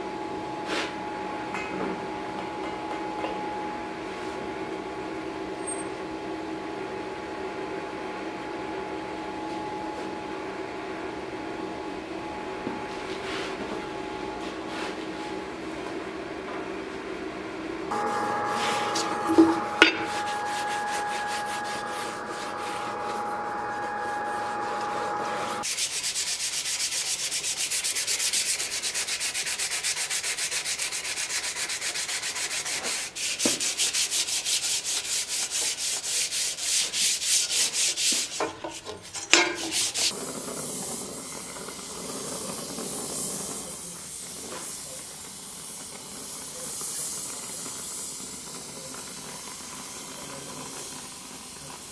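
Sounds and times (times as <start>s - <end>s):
gas forge humming: 17.9s - 25.7s
sanding blade rubbing strokes: 17.9s - 41.0s.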